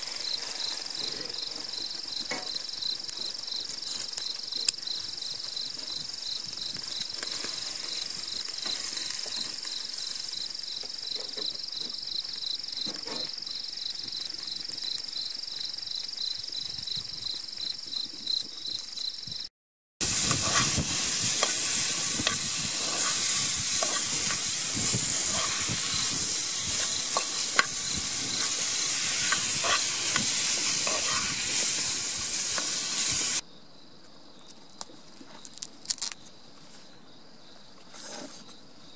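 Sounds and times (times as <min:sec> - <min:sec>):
food sizzling over fire: 0:00.0 - 0:17.7, 0:20.0 - 0:33.4
chicken grilling crackle: 0:00.0 - 0:19.1, 0:20.0 - 0:33.4, 0:35.4 - 0:36.2
crickets chirping: 0:00.0 - 0:19.5, 0:20.1 - 0:38.9.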